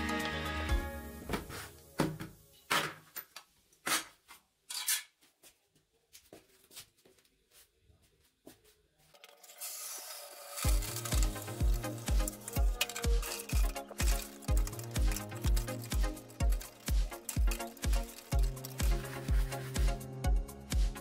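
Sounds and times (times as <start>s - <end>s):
hose spraying water: 9.5s - 20.1s.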